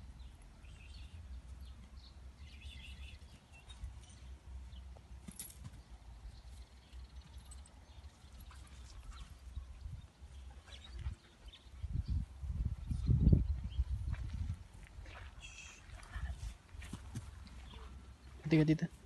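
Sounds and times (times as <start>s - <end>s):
wind rumble on microphone: 8.9s - 15.2s.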